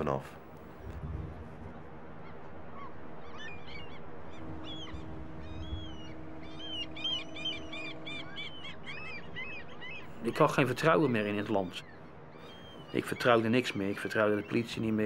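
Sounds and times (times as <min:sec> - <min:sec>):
wind and waves rushing: 0:00.0 - 0:08.1
birds calling: 0:00.0 - 0:15.0
low steady hum: 0:00.0 - 0:15.0.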